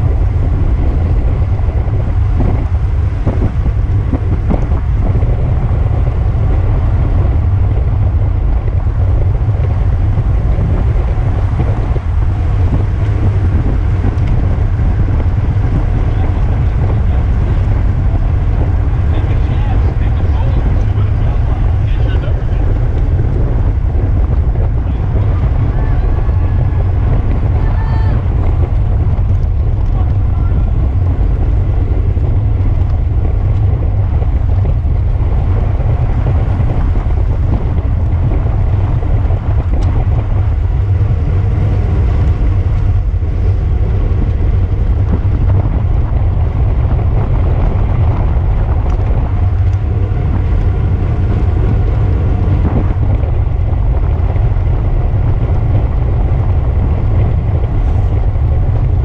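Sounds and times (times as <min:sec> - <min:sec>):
wind rumbling on microphone: 0:00.0 - 0:59.0
faint voices: 0:24.6 - 0:28.8, 0:29.4 - 0:31.1.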